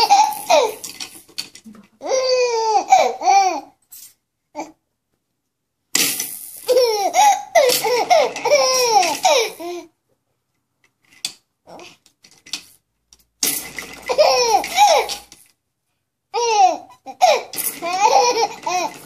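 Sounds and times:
baby laughing: 0.0 - 0.9, 2.0 - 3.8, 6.7 - 9.9, 14.0 - 15.3, 16.4 - 19.0.

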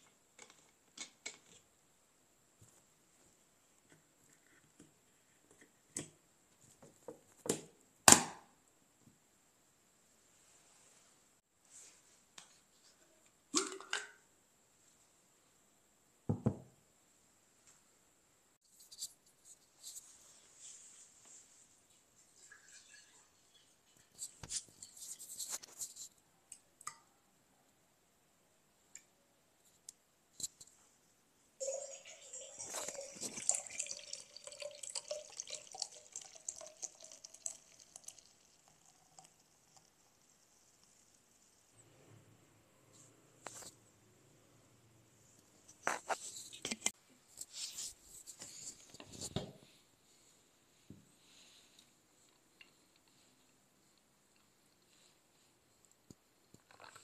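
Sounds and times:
milk pouring into a jug: 22.4 - 23.8, 31.6 - 41.0.

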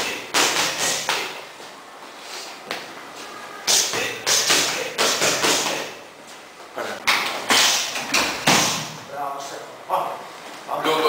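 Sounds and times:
gloves and kicks smacking pads: 0.3 - 1.4, 7.1 - 8.9.

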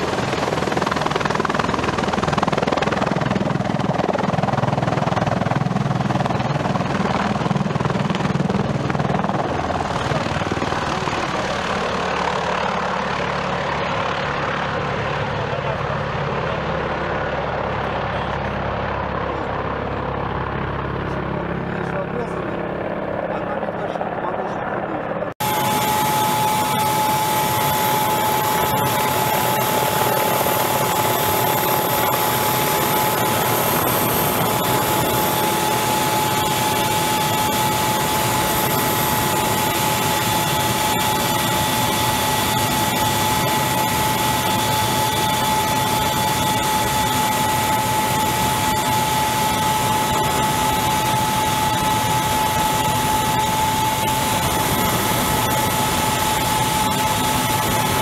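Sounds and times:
helicopter engine and rotor rush: 0.0 - 58.0
turbine whine: 23.5 - 58.0.

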